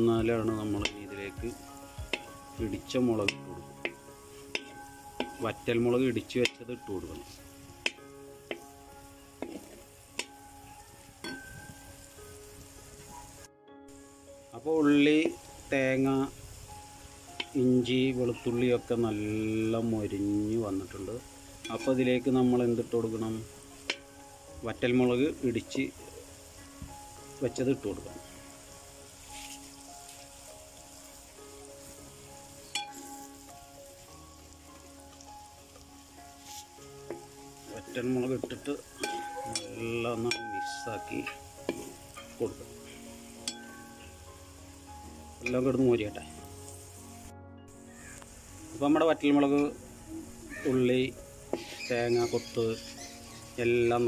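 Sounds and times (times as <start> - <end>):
food sizzling in oil: 0.0 - 54.0
metal spoon stirring: 3.2 - 5.7, 36.4 - 42.4
metal spoon scraping pan: 3.3 - 5.4.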